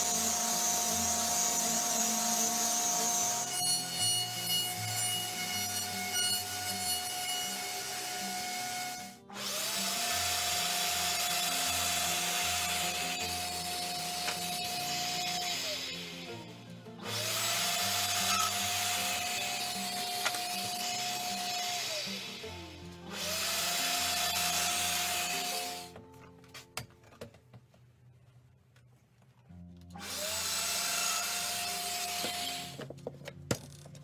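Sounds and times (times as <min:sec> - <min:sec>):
router table whining: 0:17.0 - 0:22.5
hiss of wood cutting: 0:20.5 - 0:26.0.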